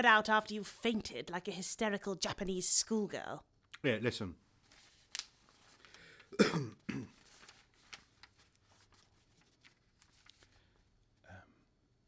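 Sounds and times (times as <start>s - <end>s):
papers rustling: 4.6s - 6.3s, 7.1s - 11.1s
man clearing his throat: 6.4s - 7.2s.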